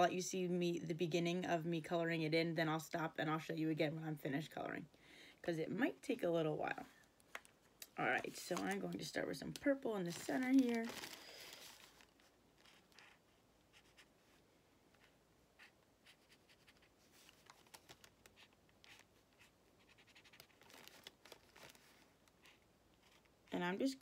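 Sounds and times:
marker strokes on paper: 0:12.6 - 0:17.4, 0:18.3 - 0:20.4.

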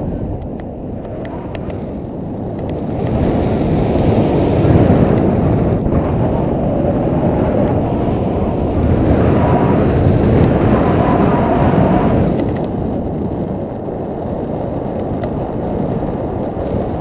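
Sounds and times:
low wind rumble: 0:00.0 - 0:17.0.

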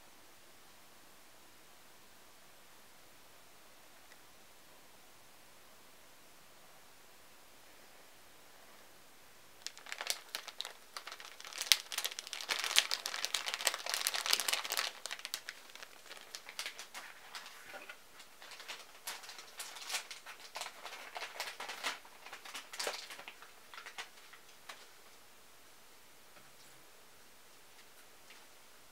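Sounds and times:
packaging crackling and rustling: 0:09.6 - 0:25.0.

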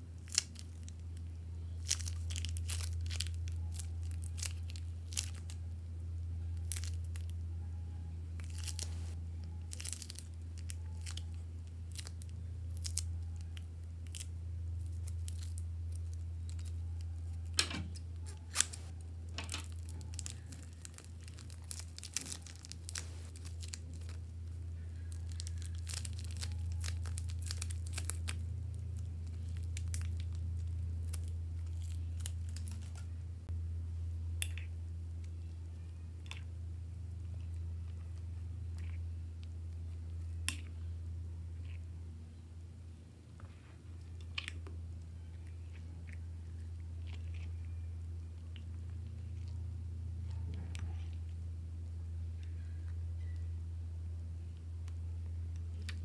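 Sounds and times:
plastic piping bags crinkling: 0:00.0 - 0:07.4, 0:08.4 - 0:33.2
steady low hum: 0:00.0 - 0:56.0.

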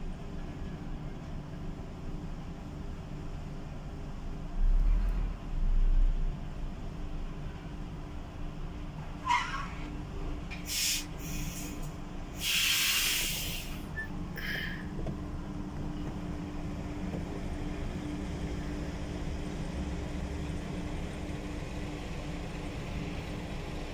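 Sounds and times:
air brake hiss: 0:10.6 - 0:14.9.

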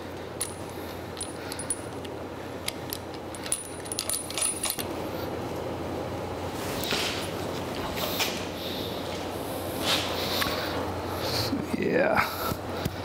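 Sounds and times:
steel bolts clicking and clinking: 0:01.2 - 0:04.9.

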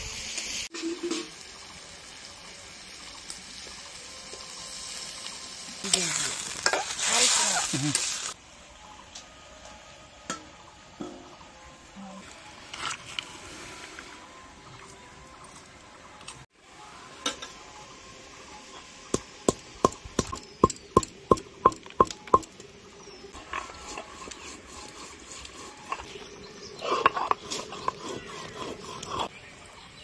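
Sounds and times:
stone scraping across slab: 0:23.4 - 0:29.3.

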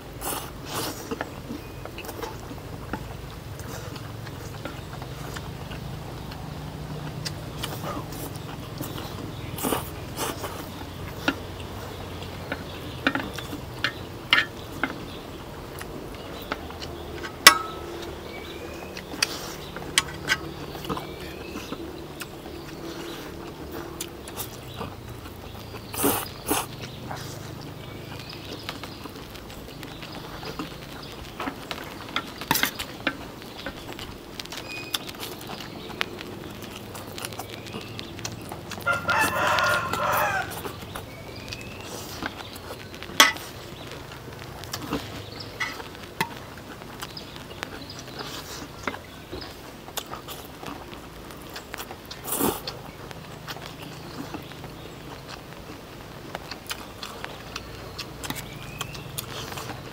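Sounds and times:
low hum: 0:01.4 - 0:39.1
faint bird chirps: 0:07.5 - 0:44.2
utensils clinking on plates: 0:17.2 - 0:18.2, 0:43.2 - 0:43.5, 0:45.6 - 0:46.4.

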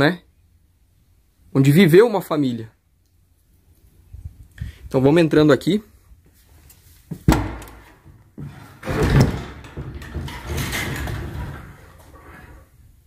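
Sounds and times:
door scraping open: 0:07.7 - 0:13.0.

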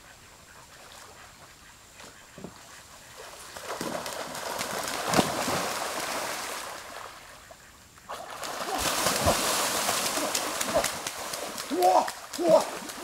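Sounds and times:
ducks splashing in water: 0:03.1 - 0:13.0.

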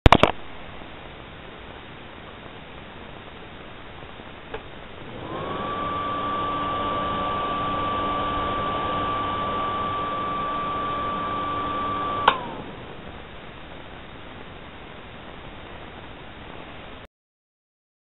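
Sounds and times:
extractor fan whine: 0:04.5 - 0:13.9.

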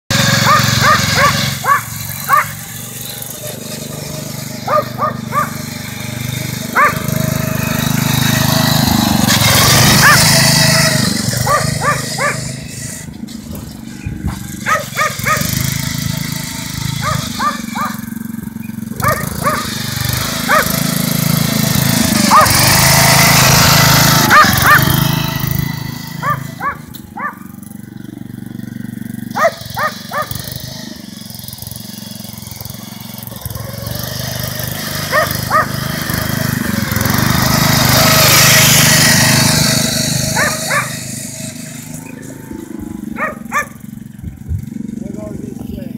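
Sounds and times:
lawnmower engine running: 0:00.1 - 0:45.9
dog barking: 0:00.4 - 0:02.6, 0:04.7 - 0:05.6, 0:06.8 - 0:07.1, 0:10.0 - 0:10.3, 0:11.4 - 0:12.5, 0:14.3 - 0:15.5, 0:17.0 - 0:18.0, 0:19.0 - 0:19.8, 0:20.5 - 0:20.7, 0:22.3 - 0:22.6, 0:24.3 - 0:24.9, 0:26.2 - 0:27.5, 0:29.4 - 0:30.4, 0:35.1 - 0:35.8, 0:40.4 - 0:41.0, 0:43.1 - 0:43.8.

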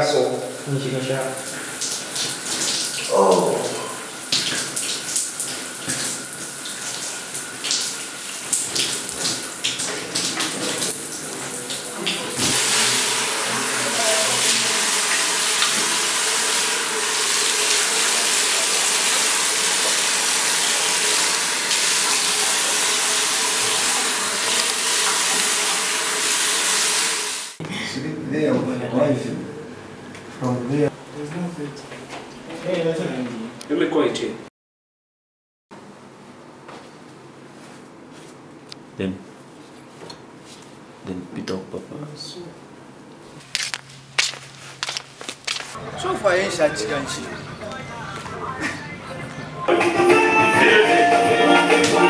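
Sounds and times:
running water splashing: 0:00.0 - 0:27.6, 0:43.5 - 0:48.6
tap water splashing over hands: 0:01.6 - 0:03.5, 0:04.3 - 0:13.0, 0:14.4 - 0:22.4
person saying oh: 0:03.1 - 0:04.0.

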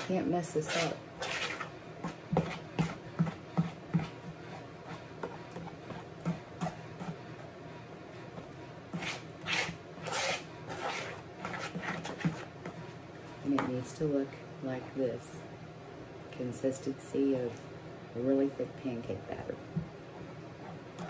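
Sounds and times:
spoon stirring batter in a bowl: 0:00.0 - 0:13.7.

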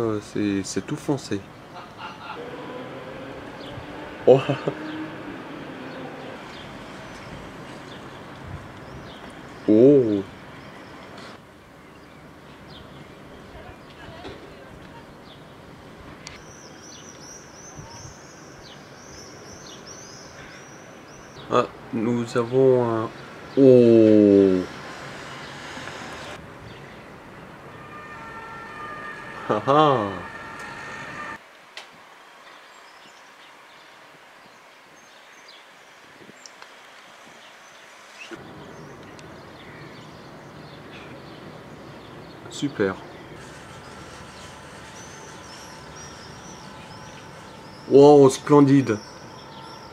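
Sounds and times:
steady distant hiss: 0:00.0 - 0:27.9, 0:30.0 - 0:49.9
birds chirping: 0:00.0 - 0:31.4, 0:32.4 - 0:49.9
bird chirps: 0:16.3 - 0:21.6, 0:37.2 - 0:49.9.

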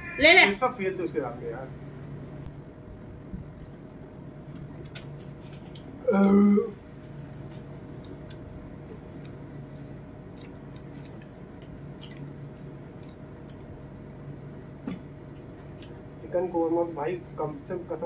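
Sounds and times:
steady low background hum: 0:00.0 - 0:18.0
throaty vocal sound: 0:06.0 - 0:06.8
chewing and lip-smacking: 0:07.5 - 0:14.3.

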